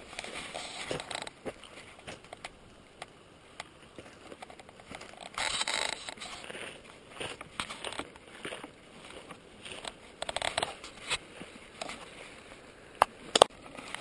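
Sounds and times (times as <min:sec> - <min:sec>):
footsteps crunching on gravel: 0:05.0 - 0:12.0.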